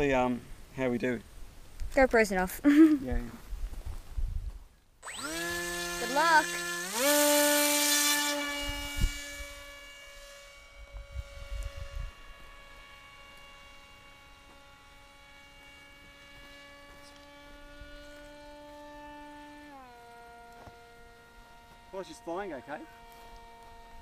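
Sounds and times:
model plane motor drone: 0:05.0 - 0:24.0.

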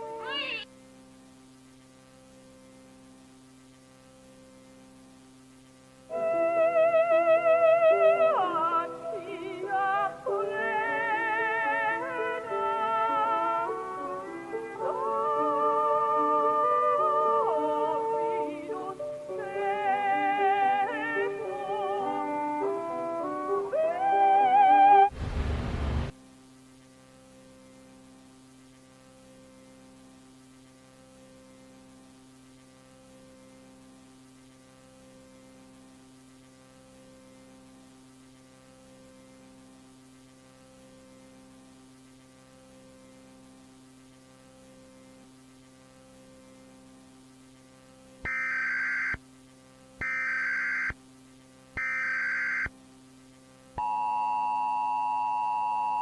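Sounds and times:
low electronic hum: 0:00.0 - 0:56.0
data bursts: 0:48.3 - 0:49.2, 0:50.0 - 0:51.0, 0:51.8 - 0:52.7
two-tone attention signal: 0:48.3 - 0:49.2, 0:50.0 - 0:51.0, 0:51.8 - 0:52.7, 0:53.8 - 0:56.0.

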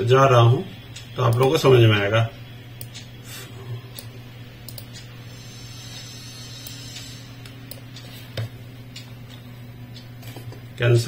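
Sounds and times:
low steady room hum: 0:00.0 - 0:11.0
computer mouse clicks: 0:04.7 - 0:05.0.

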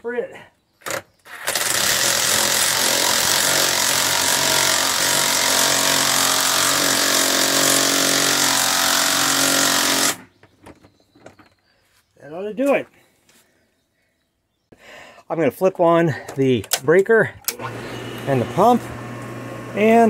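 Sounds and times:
cordless impact driver running: 0:00.9 - 0:10.2, 0:17.5 - 0:20.0.

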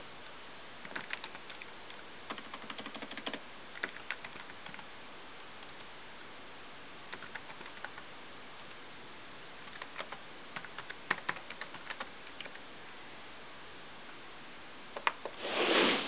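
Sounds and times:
steady hiss: 0:00.0 - 0:16.0
laptop keyboard typing: 0:00.8 - 0:04.9, 0:07.1 - 0:08.1, 0:09.6 - 0:12.6.

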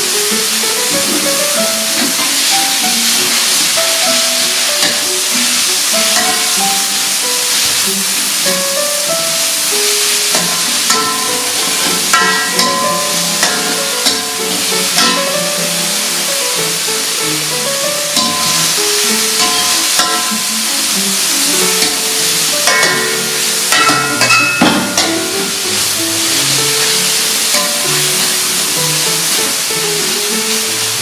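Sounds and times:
background keyboard music: 0:00.0 - 0:31.0
pork sizzling in a wok: 0:00.0 - 0:31.0
metal spatula scraping pan: 0:00.6 - 0:07.8, 0:09.8 - 0:16.2, 0:18.1 - 0:20.7, 0:21.4 - 0:29.6.

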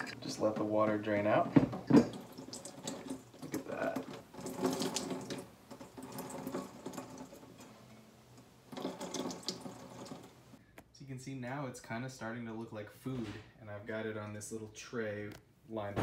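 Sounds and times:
water splattering into sink: 0:00.4 - 0:07.4, 0:08.7 - 0:10.3.

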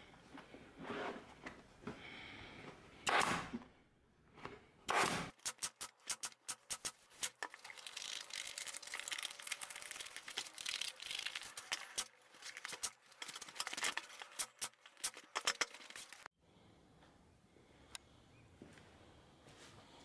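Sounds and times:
pneumatic staple gun shots: 0:03.0 - 0:03.5, 0:04.9 - 0:06.9.

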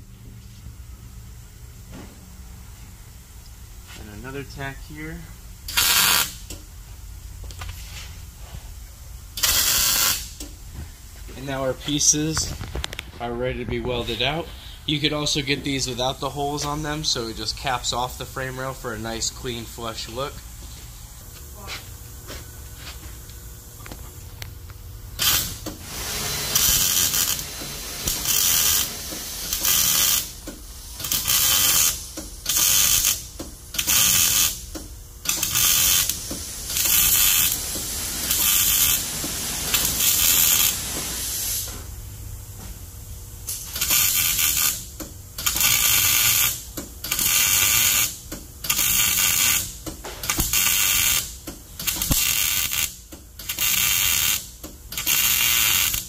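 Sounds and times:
welder crackling: 0:05.7 - 0:06.6, 0:09.4 - 0:10.5, 0:25.2 - 0:39.1, 0:39.7 - 0:40.9, 0:43.5 - 0:56.0.

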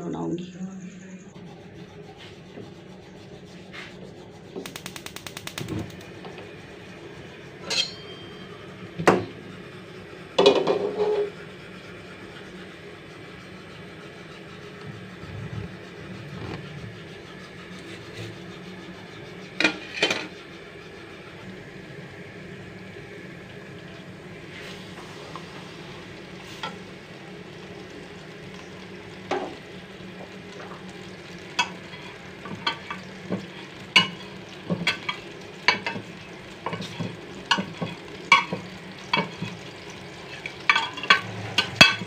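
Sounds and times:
gas igniter clicking: 0:04.6 - 0:06.0
metal pan clanking: 0:07.6 - 0:08.3, 0:40.6 - 0:42.0.

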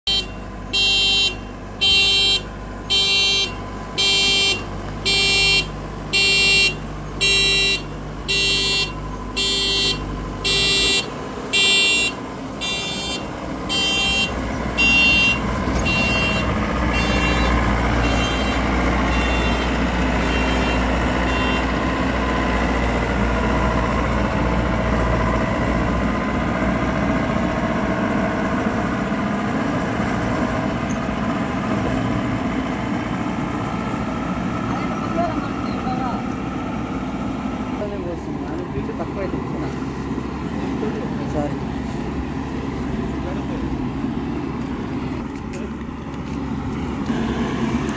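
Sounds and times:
harvester engine running: 0:00.0 - 0:47.9
warning beeper: 0:00.1 - 0:21.7.

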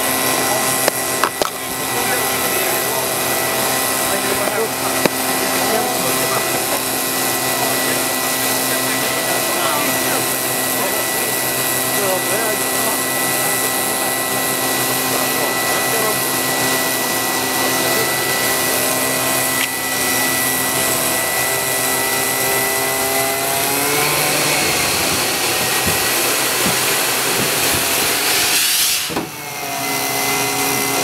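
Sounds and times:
air machine humming: 0:00.0 - 0:31.0.

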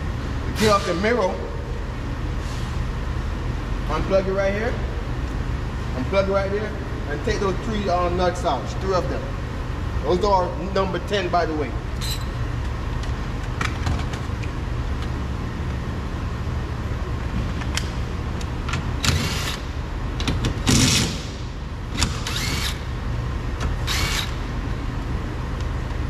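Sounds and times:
low shop hum: 0:00.0 - 0:26.0
cordless power driver whirring: 0:22.0 - 0:22.9, 0:23.7 - 0:24.4.

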